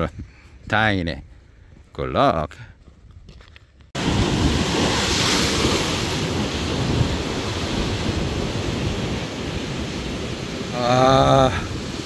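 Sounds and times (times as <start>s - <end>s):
surf breaking over rocks: 4.0s - 12.0s.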